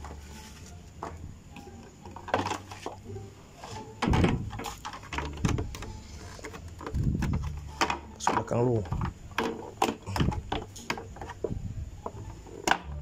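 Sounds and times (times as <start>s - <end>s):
plastic panel knocking against frame: 4.0s - 5.8s.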